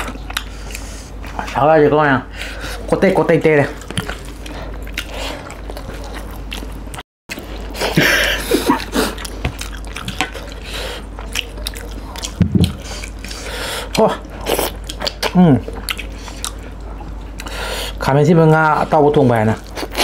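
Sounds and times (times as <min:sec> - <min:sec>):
wet chewing and mouth smacks: 0:00.0 - 0:01.6, 0:03.8 - 0:07.7, 0:08.7 - 0:17.6.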